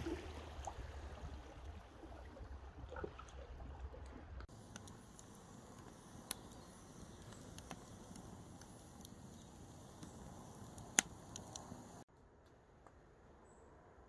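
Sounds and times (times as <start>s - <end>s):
fire popping and crackling: 4.4s - 12.1s
fire hissing: 4.5s - 12.1s.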